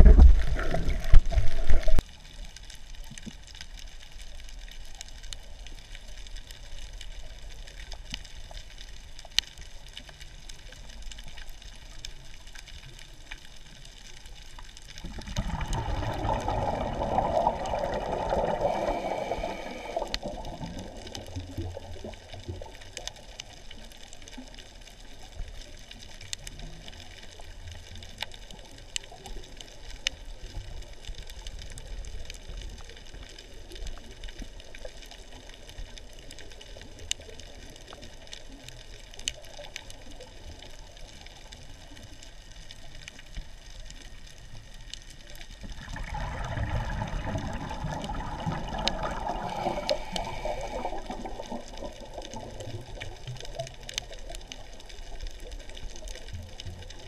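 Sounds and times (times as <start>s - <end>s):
underwater bubbling: 0.0s - 57.0s
underwater hiss: 15.1s - 22.6s, 45.7s - 53.0s.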